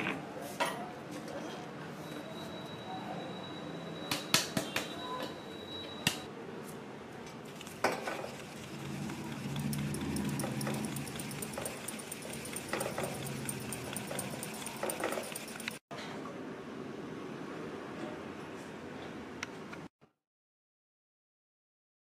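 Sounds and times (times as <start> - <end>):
spice shaken through a sieve: 7.5 - 15.8.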